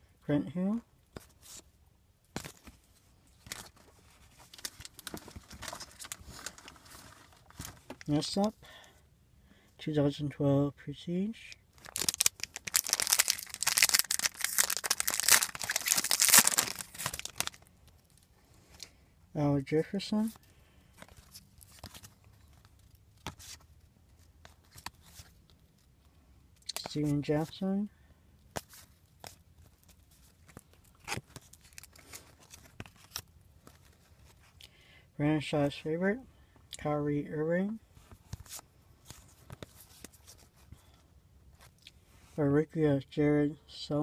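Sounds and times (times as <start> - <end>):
wrapper crinkling and tearing: 3.4 - 8.1, 11.8 - 18.2, 29.7 - 33.9.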